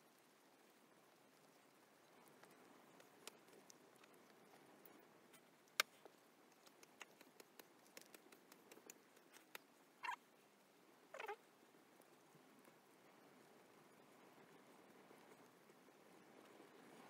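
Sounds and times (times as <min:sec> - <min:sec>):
cat licking: 0:01.4 - 0:05.1, 0:06.4 - 0:09.7.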